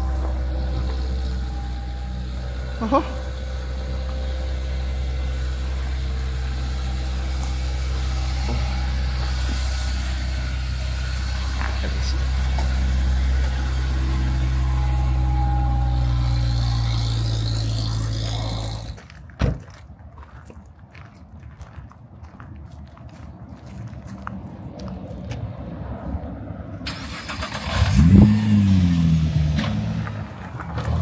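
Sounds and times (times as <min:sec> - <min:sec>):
car engine idling: 0:00.0 - 0:19.0
thump: 0:19.4 - 0:19.7.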